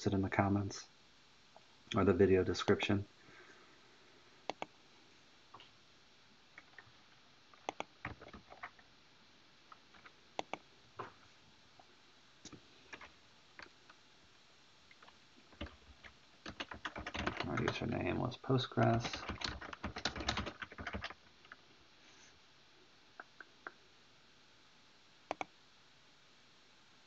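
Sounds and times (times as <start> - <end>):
mouse and keyboard clicks: 4.5 - 4.7, 7.6 - 8.8, 10.4 - 10.6, 25.3 - 25.5.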